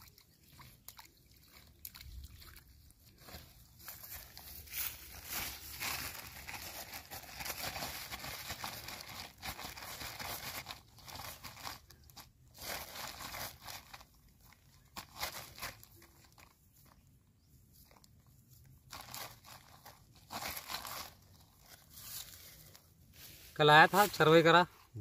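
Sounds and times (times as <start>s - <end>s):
plastic bag crinkling: 3.1s - 17.0s, 18.8s - 22.9s.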